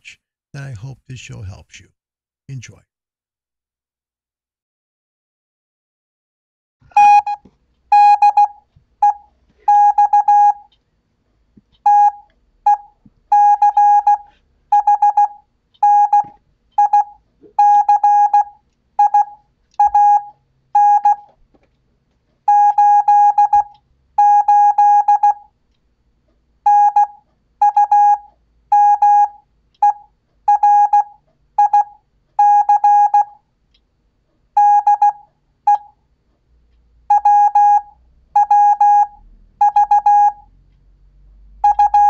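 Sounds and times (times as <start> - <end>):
morse code beeps: 6.9 - 10.7, 11.8 - 21.3, 22.5 - 25.5, 26.7 - 33.4, 34.6 - 36.0, 37.1 - 40.5, 41.6 - 42.0.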